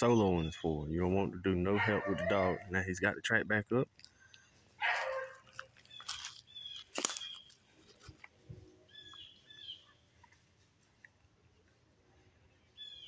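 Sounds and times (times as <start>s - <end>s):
rustle in woodland: 4.0s - 13.0s.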